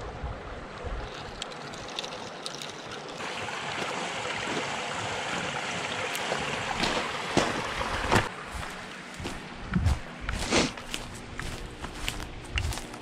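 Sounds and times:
water pouring from a pipe: 1.0s - 8.3s
footsteps on gravel: 3.8s - 4.7s, 6.1s - 13.0s.

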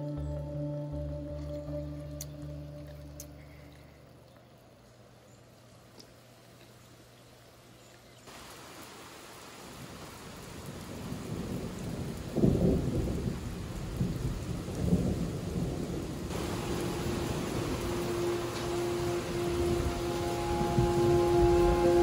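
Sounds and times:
steady rain falling: 0.0s - 22.0s
low roll of thunder: 10.4s - 22.0s.

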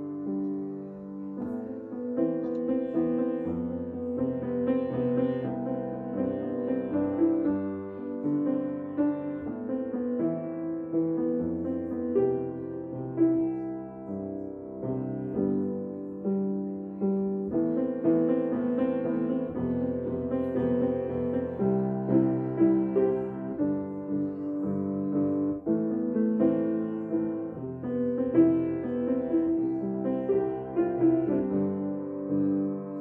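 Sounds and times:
piano music: 0.0s - 33.0s.

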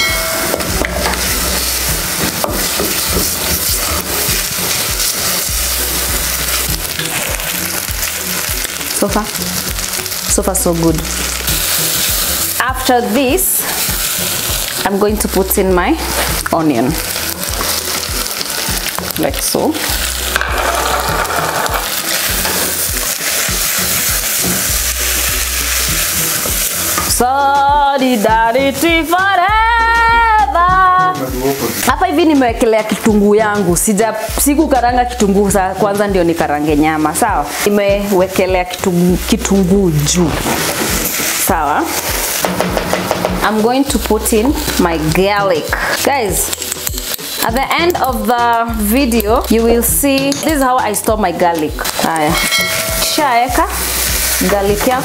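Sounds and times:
background music: 0.0s - 55.0s
meat sizzling in a pot: 0.0s - 55.0s
person singing: 27.2s - 32.4s.

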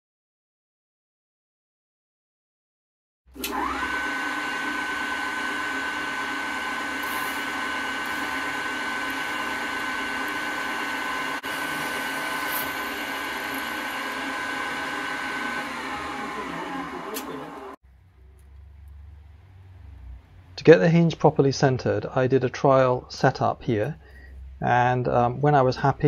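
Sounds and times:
pillar drill motor whining: 3.4s - 17.8s.

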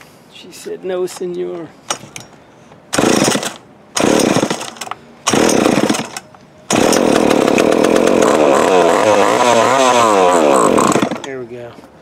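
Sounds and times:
chainsaw engine pull-started: 2.9s - 11.4s.

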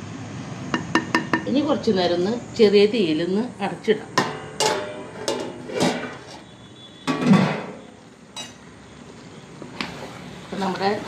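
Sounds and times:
metal lid clanking on pot: 4.2s - 6.3s, 7.1s - 7.8s.

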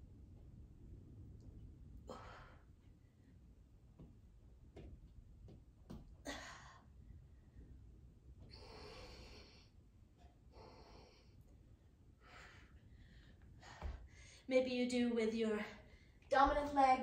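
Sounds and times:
effortful breathing: 8.4s - 9.8s.

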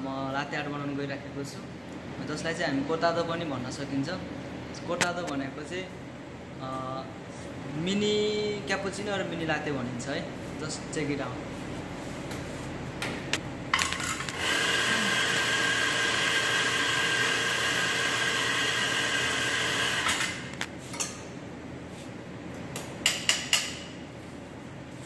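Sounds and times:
espresso grinder grinding coffee: 13.8s - 20.5s.

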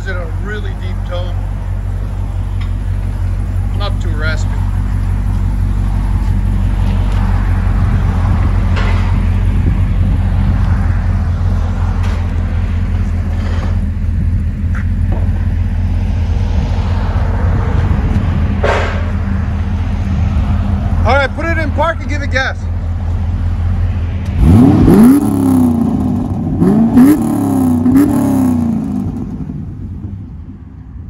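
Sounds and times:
car engine idling with deep rumble: 0.0s - 16.7s, 17.5s - 31.0s.

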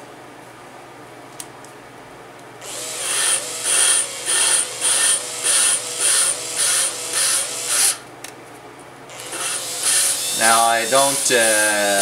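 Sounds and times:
drill motor whining: 2.6s - 8.0s, 9.1s - 12.0s.

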